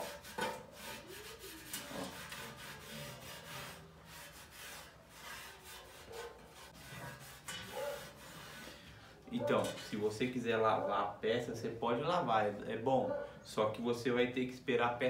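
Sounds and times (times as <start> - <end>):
cloth rubbing on ridged tile: 0.0 - 8.8.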